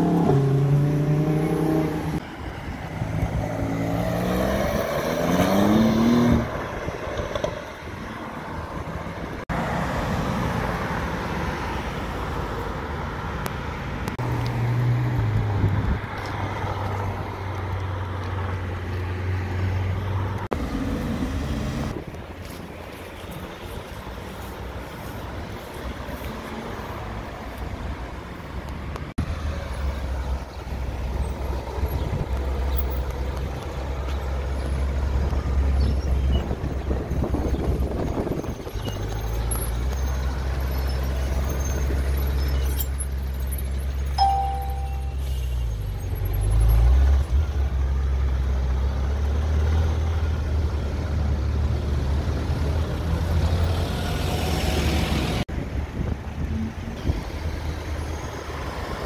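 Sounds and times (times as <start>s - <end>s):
short beep: 44.2s - 45.6s.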